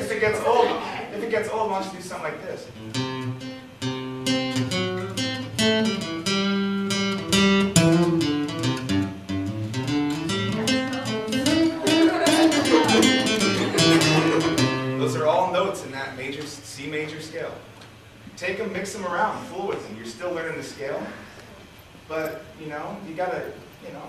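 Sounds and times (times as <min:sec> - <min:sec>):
acoustic guitar playing: 0:02.7 - 0:16.3.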